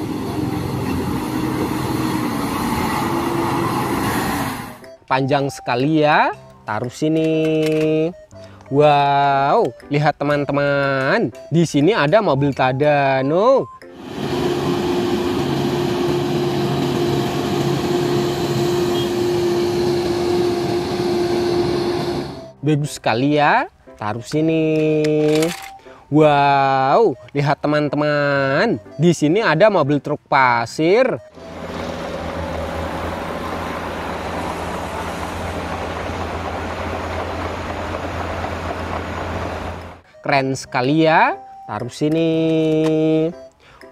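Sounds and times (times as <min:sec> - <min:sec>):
crane diesel engine drone: 0:00.0 - 0:05.0, 0:13.9 - 0:22.6, 0:31.2 - 0:40.0.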